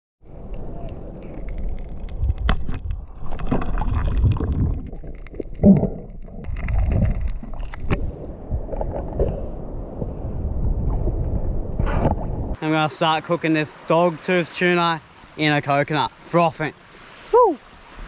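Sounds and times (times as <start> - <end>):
underwater rumble and sloshing: 0.2 - 12.6.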